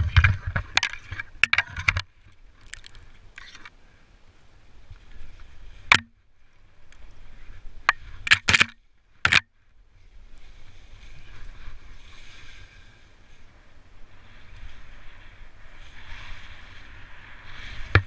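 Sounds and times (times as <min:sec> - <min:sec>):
wind rumble on microphone: 0:00.0 - 0:03.6, 0:09.8 - 0:18.0
branches snapping and knocking: 0:02.6 - 0:03.6
skis hissing through snow: 0:10.4 - 0:17.9.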